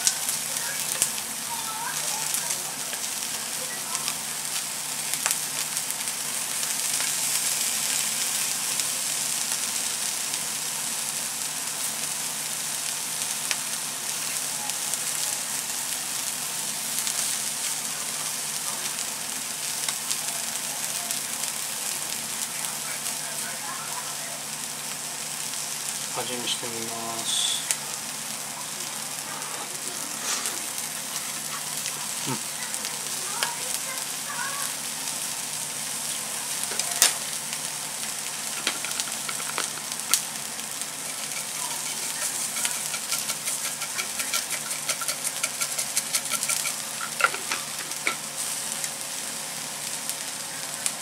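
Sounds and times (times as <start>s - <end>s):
shrimp heads sizzling in a pan: 0.0s - 51.0s.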